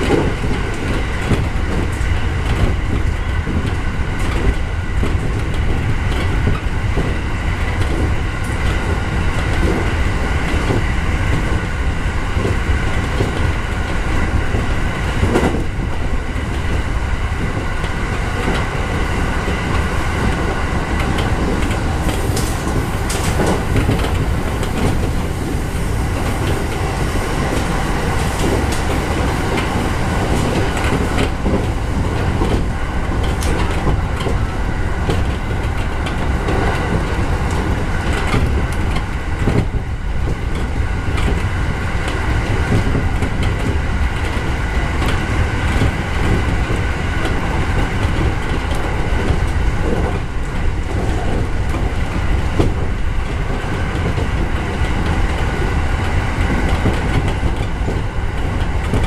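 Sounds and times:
train wheels rumbling on rail: 0.0 - 59.0
clicks over rail joints: 17.4 - 59.0.

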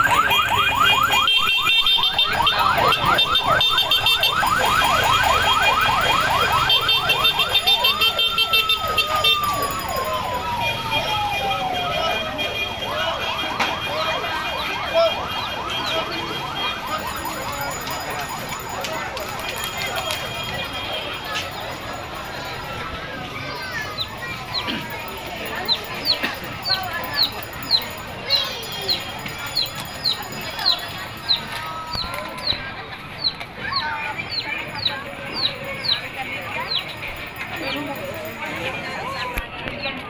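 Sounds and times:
police siren yelping and wailing: 0.0 - 22.9.

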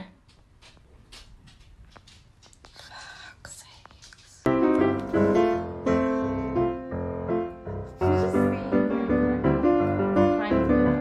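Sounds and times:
piano music: 4.5 - 11.0.

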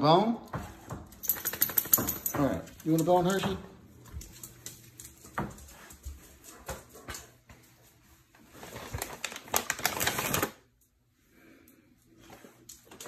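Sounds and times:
plastic bag crinkling: 8.5 - 10.6.

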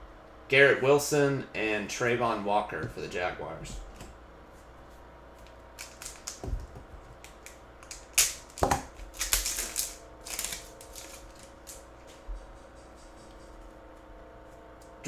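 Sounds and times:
cards snapping and sliding: 5.4 - 6.4, 7.2 - 11.8
foil wrapper crinkling and tearing: 5.8 - 6.4, 7.2 - 11.8.

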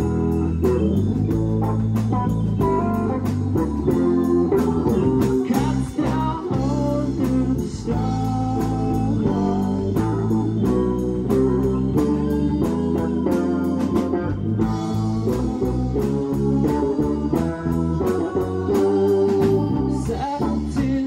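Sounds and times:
bass guitar: 0.0 - 21.0
electric guitar: 0.0 - 21.0
keyboards: 0.0 - 21.0.

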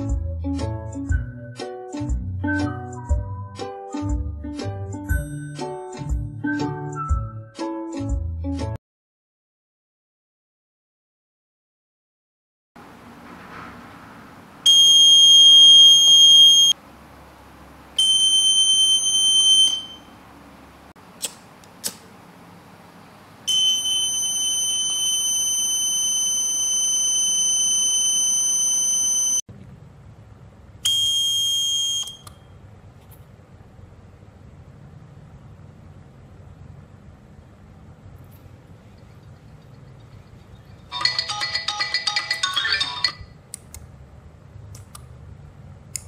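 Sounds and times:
electronic buzzer alarm: 14.7 - 16.8, 18.0 - 20.1, 23.5 - 29.4, 30.8 - 32.2
short clicks: 21.2 - 22.1.

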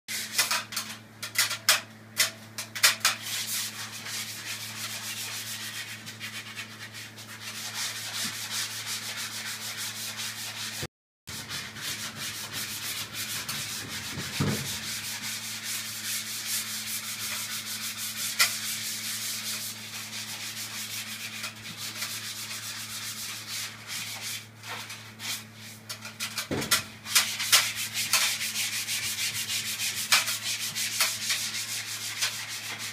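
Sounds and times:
plaster sanding by hand: 2.8 - 32.9
exhaust fan humming: 11.3 - 16.3.

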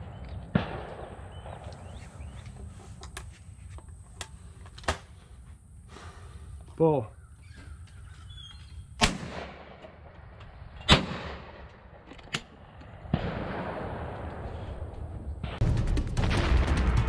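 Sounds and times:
shotgun shots with echo: 0.5 - 2.3, 9.0 - 10.0, 10.9 - 11.6, 13.1 - 14.7.

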